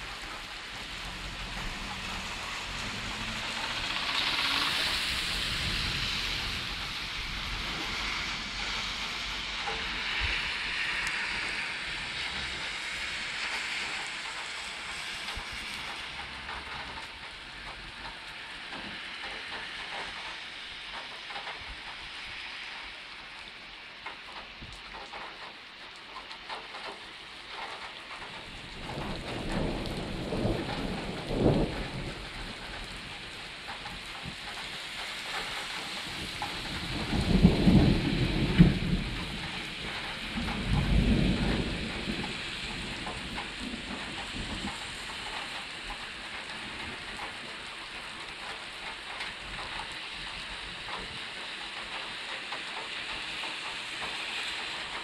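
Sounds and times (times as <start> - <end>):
thunder rumbling: 0.0 - 19.0, 27.5 - 51.1
rain on pavement and roofs: 0.0 - 55.0.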